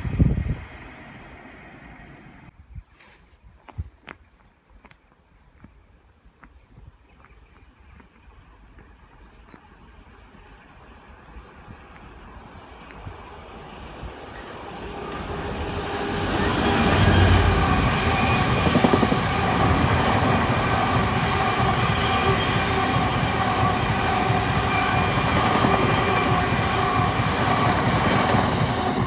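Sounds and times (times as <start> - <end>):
rumble of train wheels: 8.7 - 29.0
freight train passing: 11.0 - 29.0.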